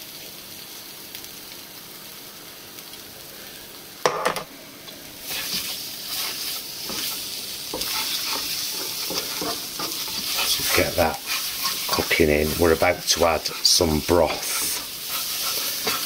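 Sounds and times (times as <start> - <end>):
paste sizzling in hot oil: 5.0 - 16.0
spatula scraping a pan: 5.2 - 16.0.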